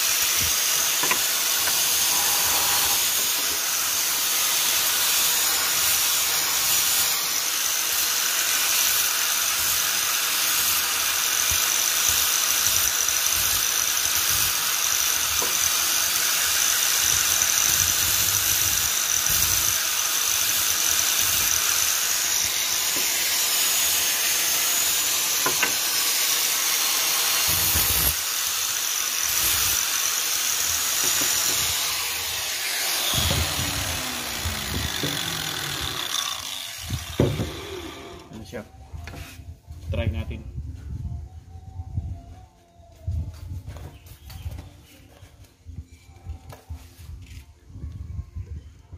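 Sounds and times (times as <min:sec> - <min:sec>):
angle grinder whining: 0:00.0 - 0:38.6.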